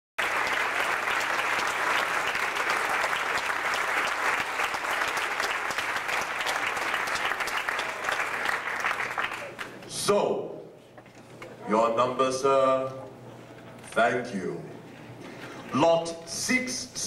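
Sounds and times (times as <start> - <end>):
audience applauding: 0.2 - 9.9.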